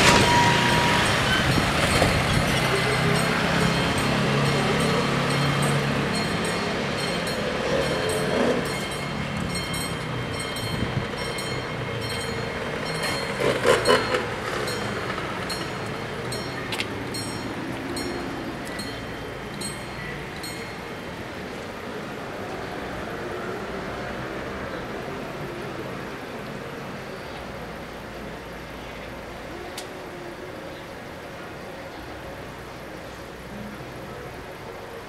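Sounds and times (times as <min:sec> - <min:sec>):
level crossing warning bells: 0:00.0 - 0:22.4.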